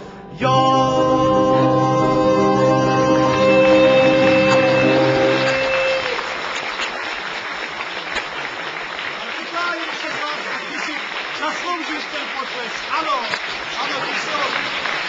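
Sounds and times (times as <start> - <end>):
song final held chord: 0.1 - 6.1
audience applause: 2.2 - 15.0.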